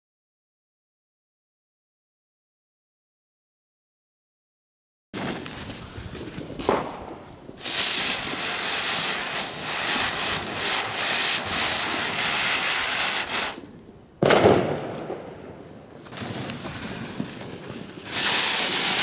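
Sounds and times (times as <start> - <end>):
spinning firework hissing: 5.2 - 14.1, 16.0 - 19.0.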